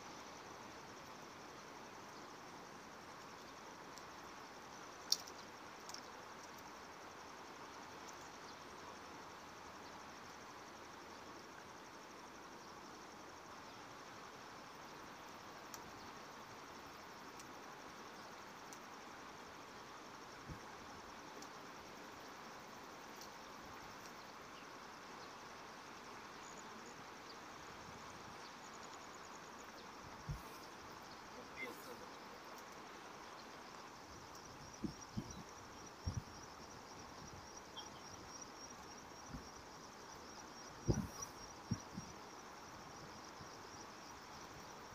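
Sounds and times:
high insect trill: 0.0 - 44.9
outdoor background hiss: 0.0 - 44.9
insect trilling: 30.2 - 32.8, 37.6 - 38.5.

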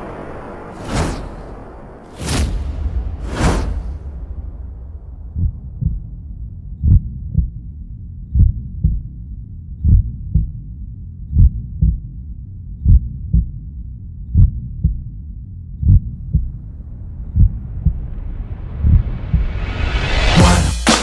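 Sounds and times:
low hum: 0.0 - 20.8
heartbeat thumps: 4.6 - 12.1, 12.8 - 13.7, 14.3 - 15.2, 15.8 - 16.6, 17.3 - 18.2, 18.8 - 19.6.

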